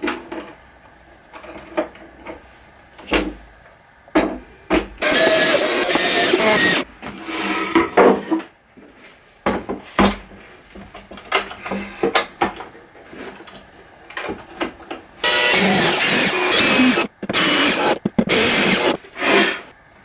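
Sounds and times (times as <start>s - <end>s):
cordless drill running: 5.0s - 6.8s, 15.2s - 19.0s.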